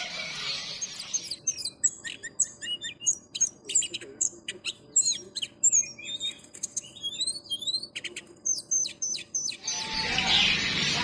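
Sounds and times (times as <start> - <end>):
songbird chirping: 0.0 - 11.0.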